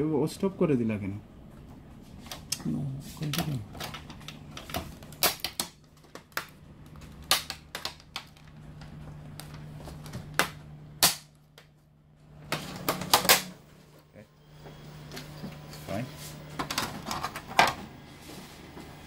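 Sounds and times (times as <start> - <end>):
plastic clips snapping loose: 3.8 - 9.6.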